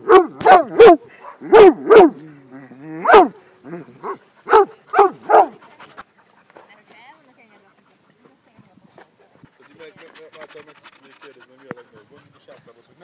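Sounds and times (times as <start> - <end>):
dog barking: 0.0 - 2.2, 3.0 - 3.4, 4.0 - 5.6.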